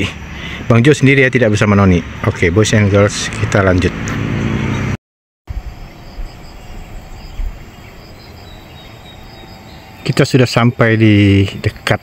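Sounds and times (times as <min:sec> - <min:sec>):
engine-like hum: 0:00.0 - 0:12.0
high insect chirps: 0:05.5 - 0:12.0.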